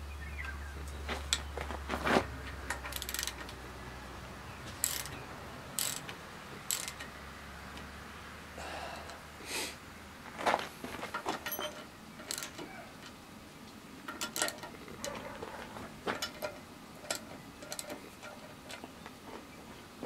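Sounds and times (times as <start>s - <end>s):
ratchet wrench clicking: 2.7s - 3.6s, 4.7s - 5.2s, 5.8s - 7.1s, 11.4s - 12.7s, 14.1s - 14.7s.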